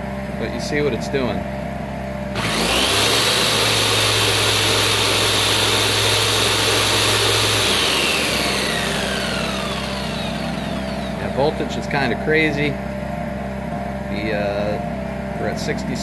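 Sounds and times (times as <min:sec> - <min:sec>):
generator engine running: 0:00.0 - 0:16.0
jigsaw motor whine: 0:02.3 - 0:11.5.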